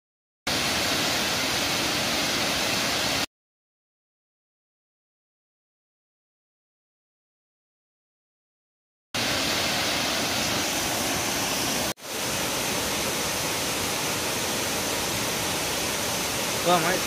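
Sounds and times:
waterfall rushing: 0.5 - 3.3, 9.2 - 17.0.

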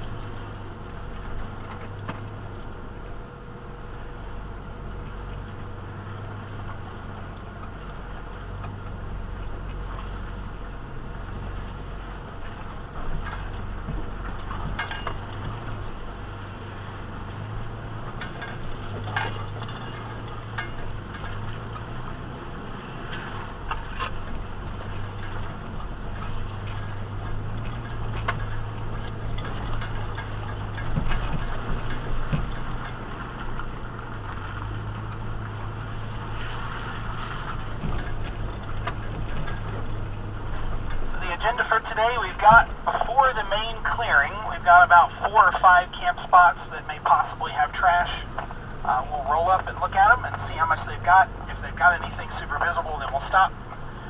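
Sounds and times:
low engine drone: 0.0 - 54.0
clinks and rattles: 13.0 - 15.9, 18.1 - 22.1, 23.7 - 34.0, 37.5 - 41.2.

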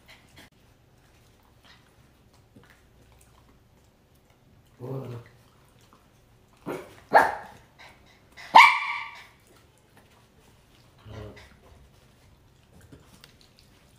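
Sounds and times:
small dogs barking: 6.6 - 7.6, 8.4 - 9.4
dog yelping: 8.5 - 9.4.

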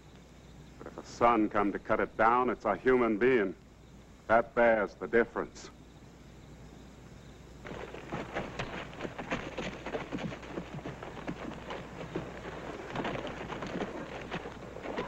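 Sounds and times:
galloping horses hoofbeats: 7.6 - 15.0.

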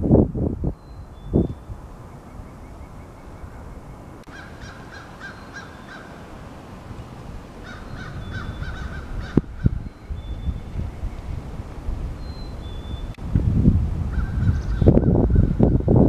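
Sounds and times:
wind: 0.0 - 16.0
repeated bird calls: 0.7 - 11.6, 12.2 - 13.2, 14.2 - 15.9.

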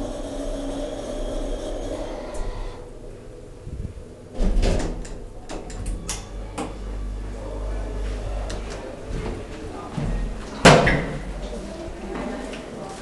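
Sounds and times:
elevator hum: 0.0 - 12.9
elevator door clicks and clunks: 4.4 - 6.7.

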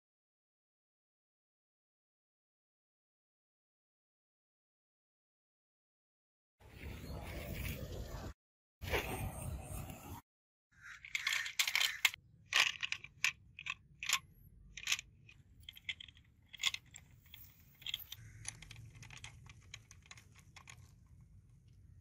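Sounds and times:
toy wheels crunching gravel: 10.9 - 14.2, 15.7 - 21.3.

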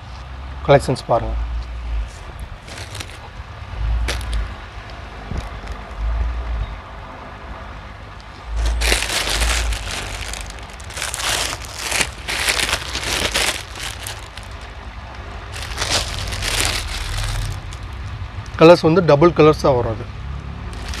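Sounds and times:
plastic bags crinkling: 2.1 - 3.3, 4.0 - 4.6, 8.5 - 14.7, 15.5 - 18.0, 20.7 - 21.0.

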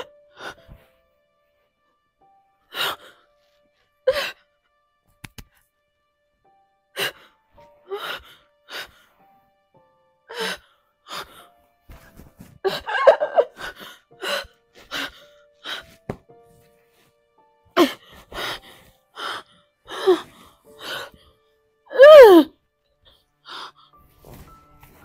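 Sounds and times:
soft background music: 0.0 - 25.0
woman moaning: 21.9 - 22.5
woman gasping and sighing: 21.9 - 22.6.

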